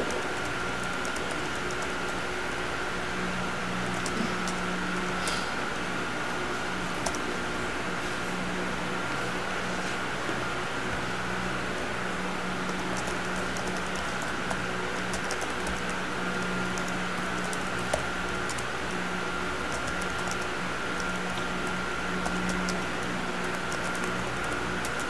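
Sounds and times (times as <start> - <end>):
room hum: 0.0 - 25.0.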